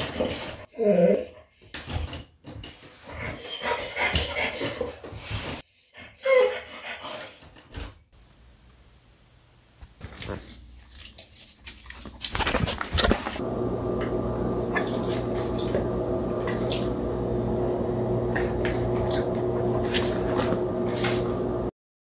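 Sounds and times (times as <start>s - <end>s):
steady hum: 13.4s - 21.7s.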